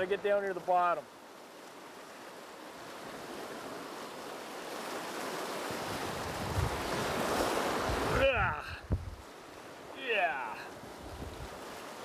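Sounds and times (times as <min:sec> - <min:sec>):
river rushing over rocks: 0:03.5 - 0:12.0.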